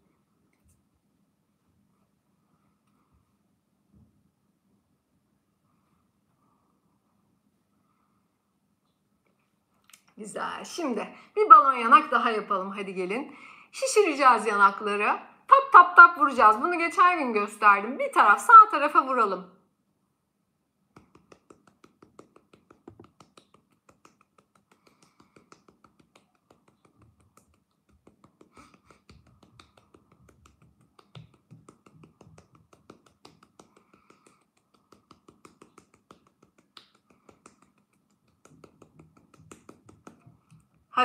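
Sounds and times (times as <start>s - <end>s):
fingertips tapping on cheek: 20.9s - 41.0s.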